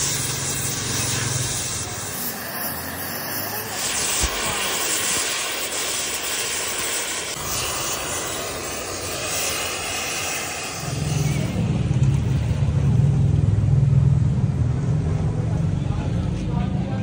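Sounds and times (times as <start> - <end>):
torch flame hissing: 0.0 - 13.4
low rumble: 10.5 - 16.4.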